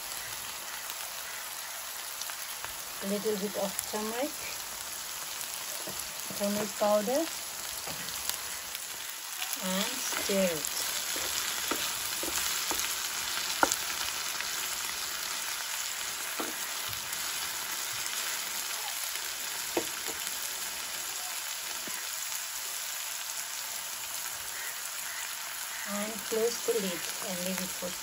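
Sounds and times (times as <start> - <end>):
vegetables sizzling in hot oil: 0.0 - 28.0
spatula knocking against pan: 10.9 - 12.9.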